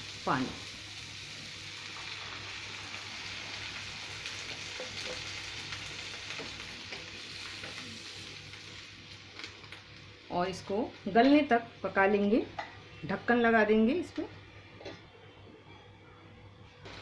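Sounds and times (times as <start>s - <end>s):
food sizzling in hot oil: 0.0s - 11.2s.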